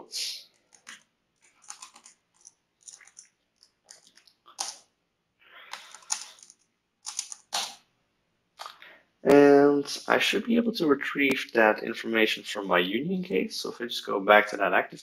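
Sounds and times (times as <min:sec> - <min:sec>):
computer keyboard typing: 0:00.5 - 0:04.8, 0:05.7 - 0:07.7.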